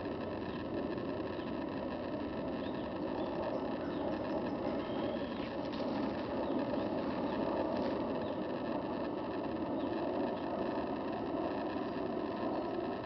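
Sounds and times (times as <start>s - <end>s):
low outdoor rumble: 0.0s - 13.0s
faint high chirps: 2.5s - 8.6s.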